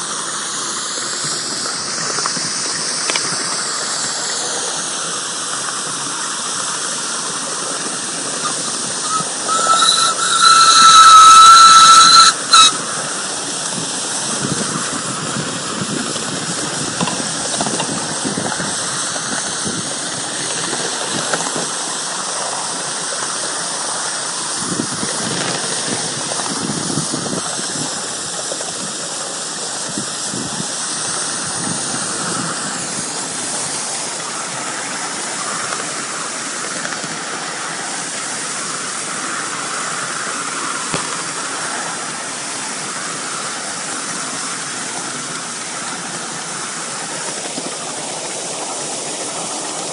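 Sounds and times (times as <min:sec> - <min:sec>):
steam locomotive hissing: 0:00.0 - 0:49.9
steam whistle toots: 0:08.4 - 0:13.3.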